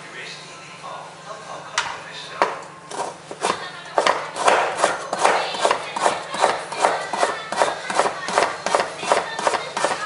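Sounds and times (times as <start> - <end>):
knife chopping on cutting board: 2.4 - 10.0.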